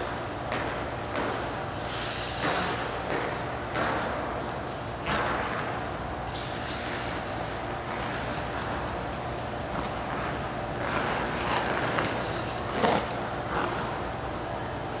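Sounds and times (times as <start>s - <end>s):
indoor rink hum: 0.0s - 15.0s
skate blades scraping ice: 6.3s - 14.0s.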